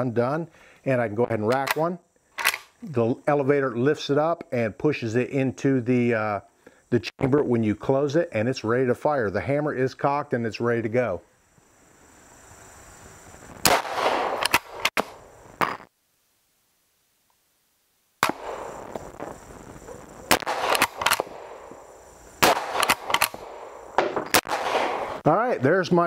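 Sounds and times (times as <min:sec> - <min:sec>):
rifle lever clacking: 0:02.4 - 0:02.7
rifle shots with echo: 0:13.6 - 0:15.2, 0:18.2 - 0:18.7, 0:20.3 - 0:21.7, 0:22.4 - 0:25.2.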